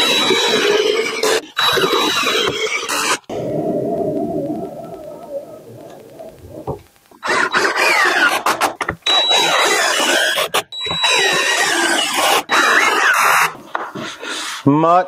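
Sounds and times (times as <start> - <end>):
cordless drill driving screws: 7.2 - 13.5.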